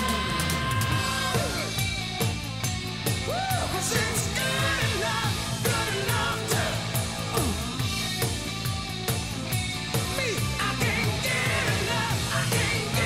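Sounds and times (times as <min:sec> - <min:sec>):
person singing: 0:00.0 - 0:01.8, 0:03.2 - 0:07.7, 0:10.2 - 0:13.0
steady drum beat: 0:00.0 - 0:13.0.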